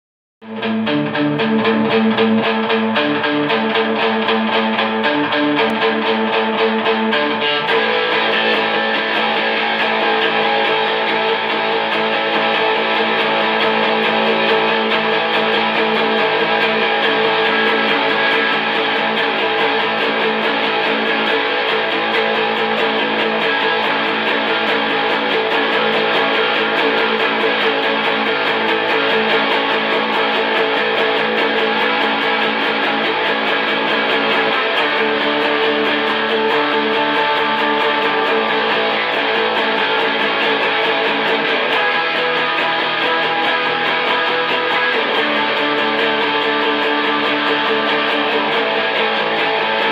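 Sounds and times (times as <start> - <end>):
electric guitar strumming: 0.4 - 49.9.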